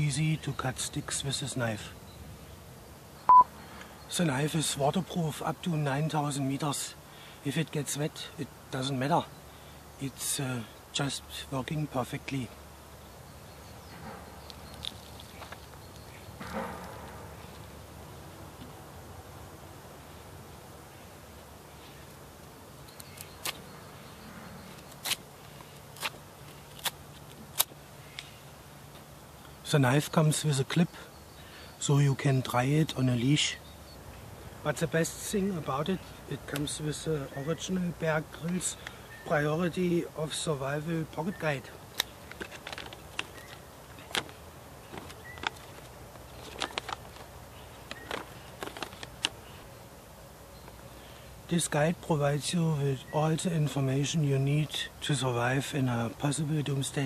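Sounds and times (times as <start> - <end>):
paper crackling and rustling: 42.0 - 49.6.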